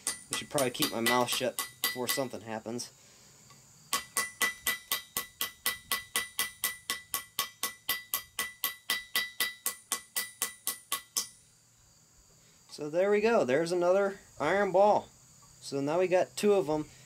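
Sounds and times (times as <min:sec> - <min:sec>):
small hammer tapping on iron: 0:00.0 - 0:02.3, 0:03.9 - 0:11.4.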